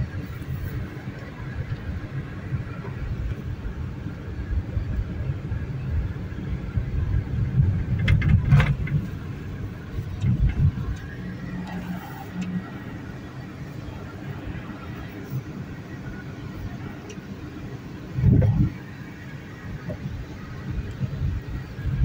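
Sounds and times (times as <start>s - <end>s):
tyres and engine rumbling: 0.0s - 22.0s
car knocks and rattles: 7.1s - 11.2s.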